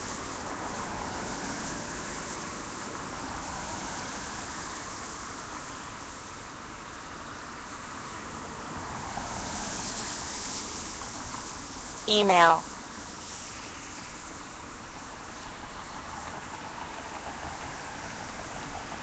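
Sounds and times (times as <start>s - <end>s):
tyres hissing on wet road: 0.0s - 19.0s.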